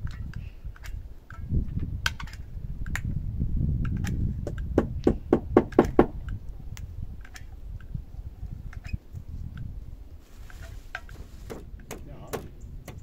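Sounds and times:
hammer hitting nail into wood: 4.8s - 6.2s, 11.5s - 13.0s.

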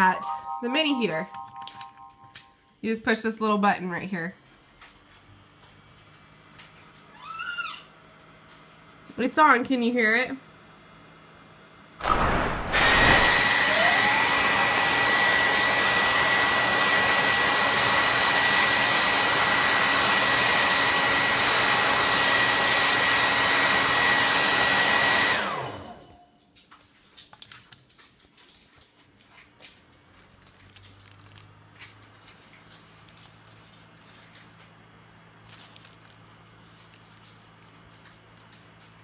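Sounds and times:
hair dryer running: 12.0s - 26.2s
faint clicks and handling noises: 26.4s - 34.8s, 35.4s - 39.0s.

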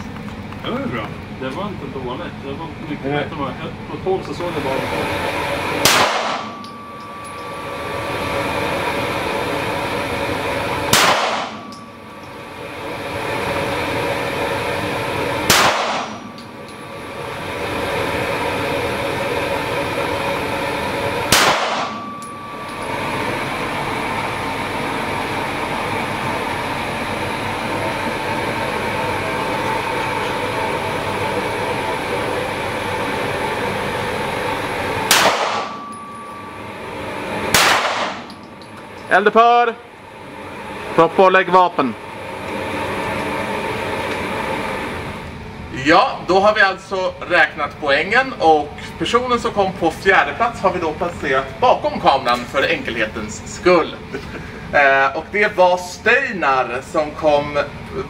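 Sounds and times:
steady background hum: 0.0s - 58.0s
pistol shots: 5.8s - 6.6s, 10.9s - 11.6s, 15.4s - 16.3s, 21.3s - 22.0s, 35.1s - 35.8s, 37.5s - 38.2s.

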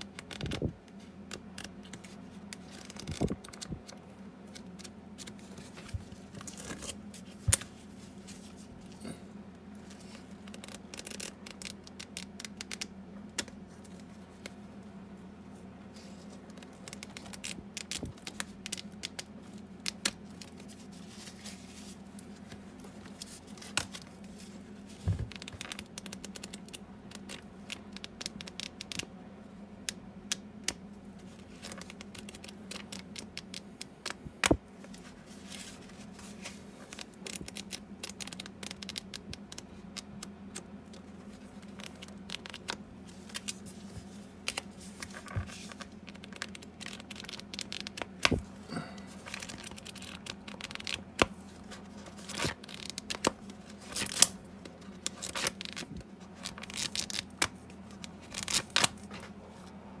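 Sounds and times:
book rustling: 4.5s - 9.1s, 15.9s - 26.5s, 34.8s - 39.6s, 41.0s - 54.3s.

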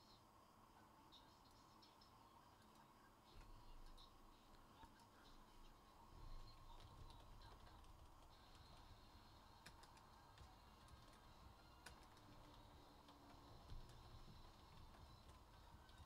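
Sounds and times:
computer keyboard typing clicks: 6.7s - 16.0s.

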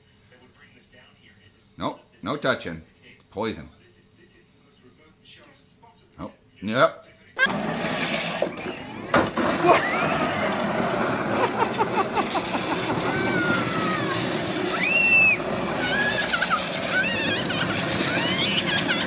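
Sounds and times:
toy car rumbling on concrete: 7.4s - 19.0s
child squealing: 8.5s - 11.2s, 12.1s - 19.0s.

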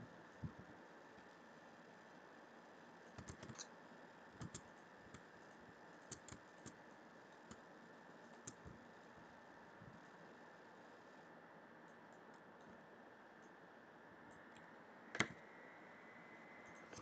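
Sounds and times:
low steady hiss: 0.0s - 17.0s
computer mouse clicks: 3.1s - 3.8s, 4.4s - 5.3s, 6.0s - 7.6s, 8.3s - 8.8s, 14.3s - 15.4s, 16.6s - 17.0s.

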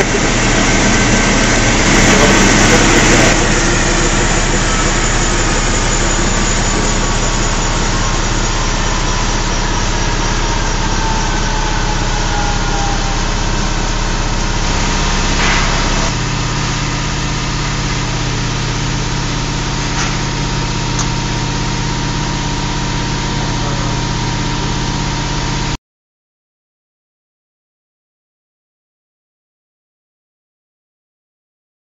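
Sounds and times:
faint falling whine: 0.0s - 24.7s
compressor mechanical hum: 0.0s - 25.8s.

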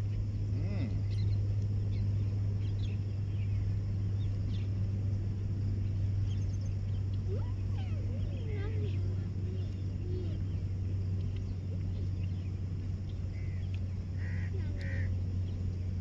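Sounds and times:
steady low hum: 0.0s - 16.0s
faint bird chirps: 0.6s - 4.8s, 5.8s - 15.8s.

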